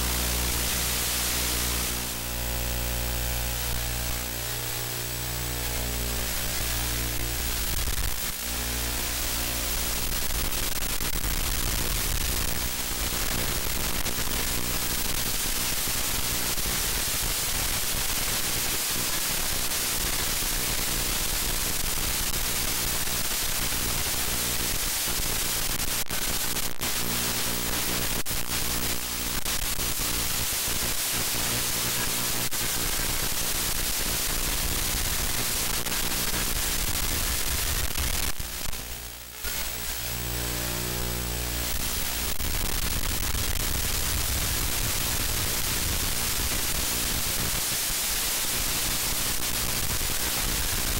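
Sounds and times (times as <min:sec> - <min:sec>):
constant low buzz: 0:00.0 - 0:50.9
radio static hiss: 0:00.0 - 0:50.9
signal crackles: 0:30.9 - 0:50.4.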